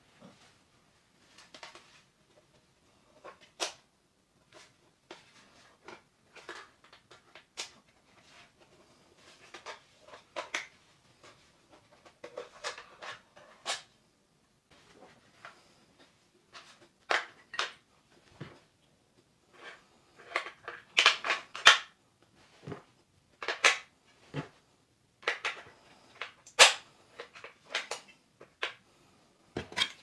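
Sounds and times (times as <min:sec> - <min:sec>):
hard plastic parts clicking and knocking: 0:29.6 - 0:30.0.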